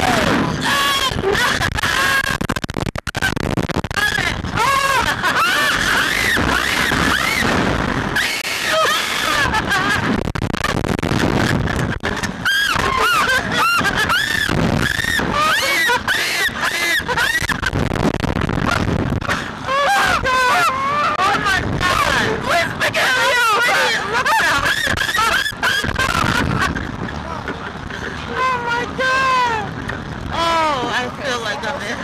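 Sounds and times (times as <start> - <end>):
woman and boy screaming: 0.0 - 2.3, 12.5 - 17.3, 19.7 - 24.4
wind rushing past microphone: 0.0 - 32.0.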